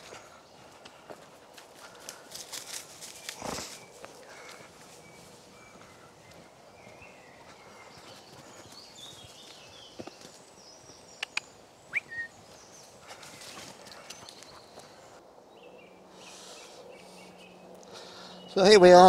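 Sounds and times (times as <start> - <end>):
footsteps on dirt path: 0.0 - 15.2
birds chirping and whistling: 3.2 - 19.0
sharp ticks: 11.2 - 11.5.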